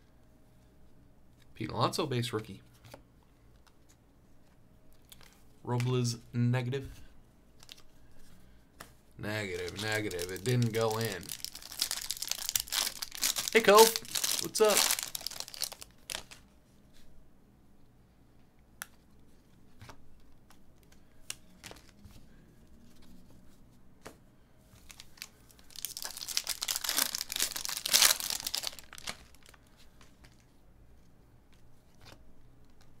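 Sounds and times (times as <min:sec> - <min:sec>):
foil pack crinkling and tearing: 0:09.4 - 0:16.4, 0:24.8 - 0:30.4
soft clicks and rustles: 0:29.1 - 0:33.0.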